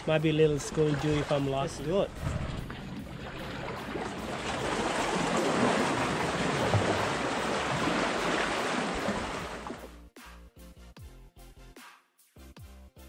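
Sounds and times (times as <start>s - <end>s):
waves washing against rocks: 0.6s - 9.8s.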